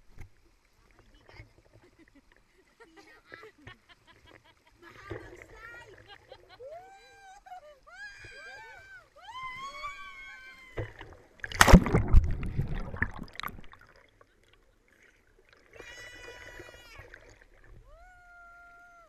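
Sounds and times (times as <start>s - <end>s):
person shouting woo: 6.6s - 10.8s, 17.8s - 19.0s
person shrieking excitedly: 6.6s - 10.8s, 17.8s - 19.0s.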